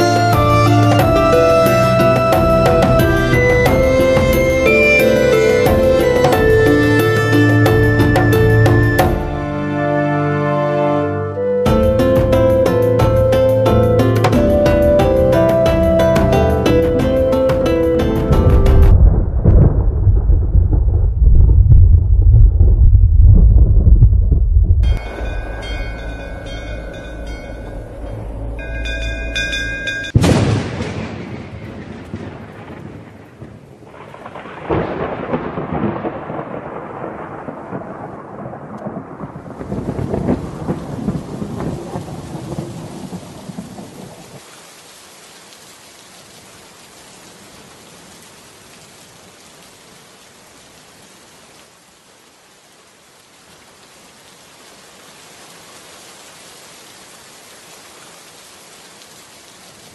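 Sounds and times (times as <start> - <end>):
heavy rain: 0.0 - 59.9
rolling thunder: 18.1 - 29.5, 30.1 - 44.4
thunderclap: 18.2 - 44.4
brass bells ringing: 24.9 - 30.3.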